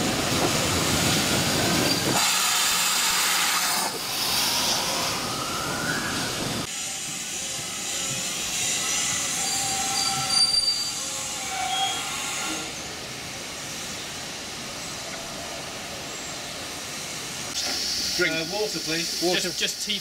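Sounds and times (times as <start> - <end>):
train running noise: 0.0 - 20.0
brake and wheel squeals: 1.8 - 2.2, 8.5 - 12.9.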